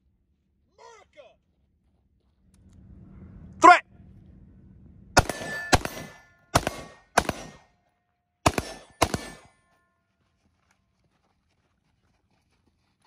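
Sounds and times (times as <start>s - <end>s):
short metallic ring: 5.2s - 7.1s
rifle shots: 5.2s - 7.8s, 8.4s - 9.6s.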